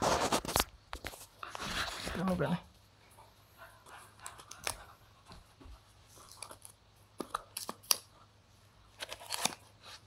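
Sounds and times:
packaging rustling: 0:08.9 - 0:10.0.

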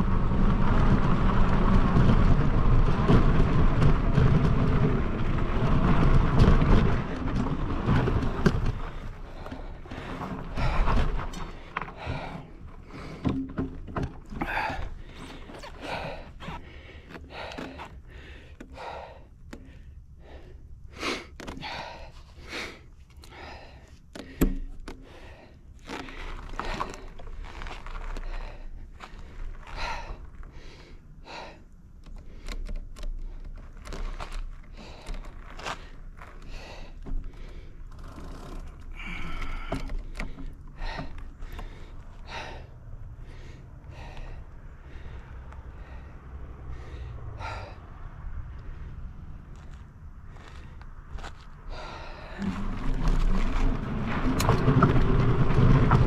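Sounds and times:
low rumble of bike ride: 0:00.0 - 0:56.0
person breathing hard: 0:08.7 - 0:13.4, 0:14.3 - 0:33.6, 0:34.7 - 0:37.8, 0:38.9 - 0:49.0, 0:50.2 - 0:53.7.

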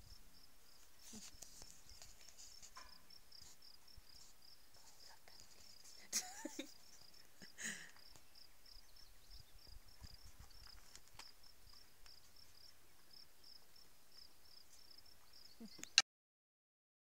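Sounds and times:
insect chirping: 0:00.0 - 0:16.0
handling rustle: 0:10.0 - 0:12.6.

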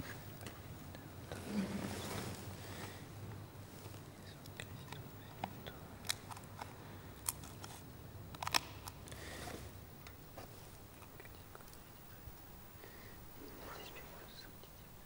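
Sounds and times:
bread snapping and cracking: 0:08.3 - 0:09.2.

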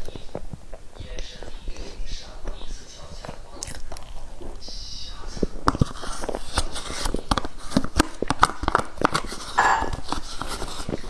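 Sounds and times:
wet mouth clicks and chewing: 0:00.0 - 0:04.8
plastic spoon scraping cup: 0:05.6 - 0:11.0.

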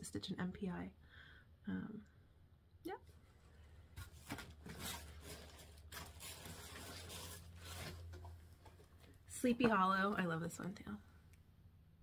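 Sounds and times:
plastic sleeve crinkling: 0:03.1 - 0:09.2.

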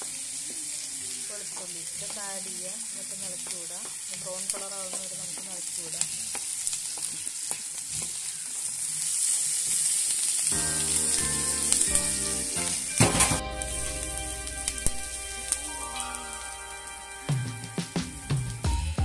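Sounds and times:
food sizzling in hot oil: 0:00.0 - 0:18.6
background music: 0:10.5 - 0:19.0.

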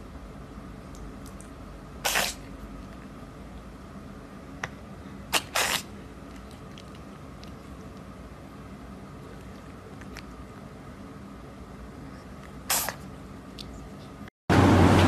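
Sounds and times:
cat sneezing: 0:02.0 - 0:02.6, 0:05.3 - 0:06.0, 0:12.6 - 0:13.1.

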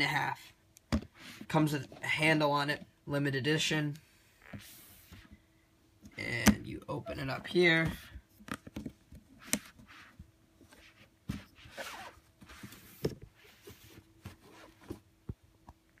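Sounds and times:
cardboard box rustling and scraping: 0:09.7 - 0:15.1.

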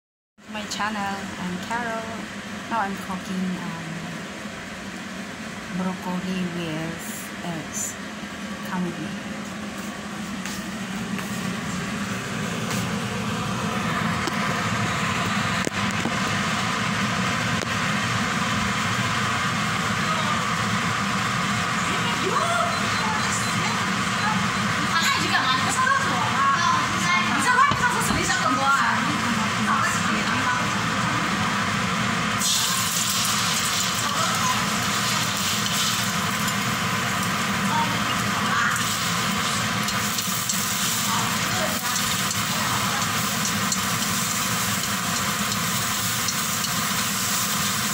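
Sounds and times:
kitchen fan humming: 0:00.4 - 0:47.9
eggs sizzling in a wok: 0:30.9 - 0:47.9.

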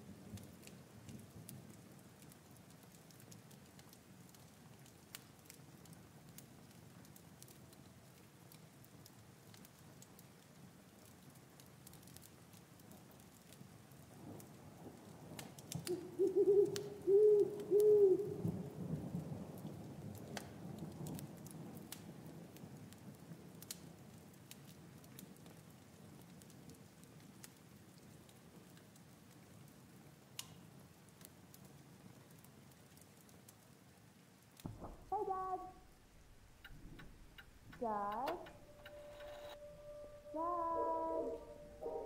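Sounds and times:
light ticks: 0:02.2 - 0:13.6, 0:20.2 - 0:22.1, 0:30.4 - 0:30.6, 0:36.6 - 0:39.6
owl hooting: 0:15.9 - 0:18.4, 0:36.6 - 0:42.0
faint low rumble: 0:34.6 - 0:42.0.

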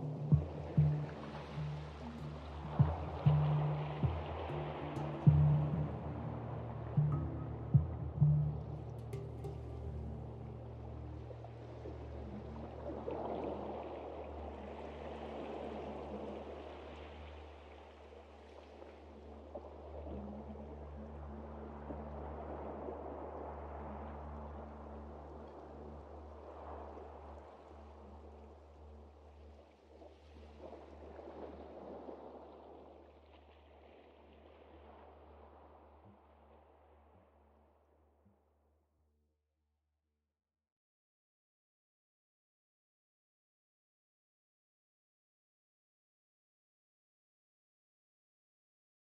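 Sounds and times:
ambient music drone: 0:00.0 - 0:16.8
stream water rushing: 0:00.0 - 0:36.0.

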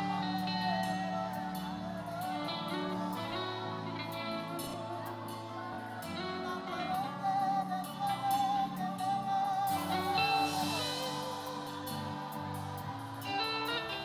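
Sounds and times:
woman singing gospel song: 0:00.0 - 0:14.0
band accompaniment: 0:08.3 - 0:14.0.

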